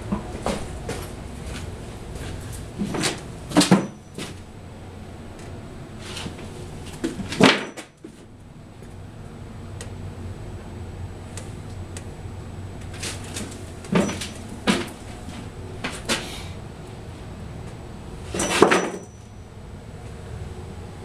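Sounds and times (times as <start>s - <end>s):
low steady hum: 0.0s - 21.0s
sharp knocks and clunks: 13.1s - 16.4s
clatter: 18.3s - 19.3s.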